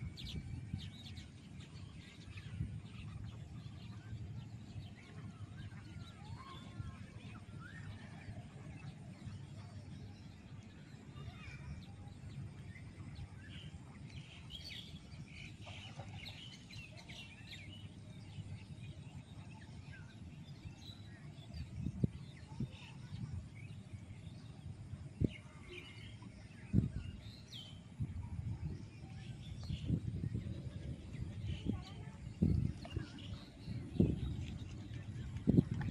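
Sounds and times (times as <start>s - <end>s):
small birds chirping: 8.8s - 24.6s, 25.2s - 35.9s
steady low rumble: 27.8s - 35.9s.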